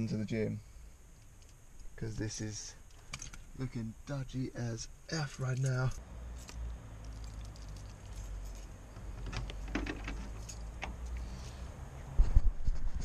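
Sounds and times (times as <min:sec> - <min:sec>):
keys jingling: 0:05.4 - 0:08.8, 0:10.1 - 0:10.8.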